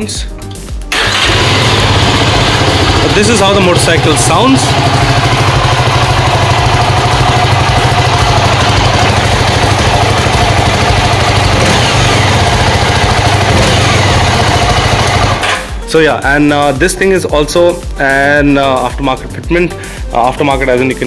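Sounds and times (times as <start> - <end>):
motorcycle engine idling: 0.9 - 15.8.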